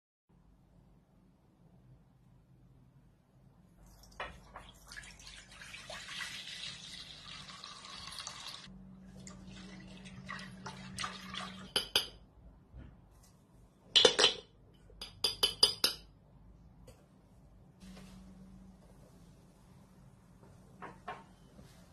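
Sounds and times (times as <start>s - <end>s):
milk pouring into a pot: 3.8s - 11.8s
whisk clinking against pot: 11.4s - 12.2s.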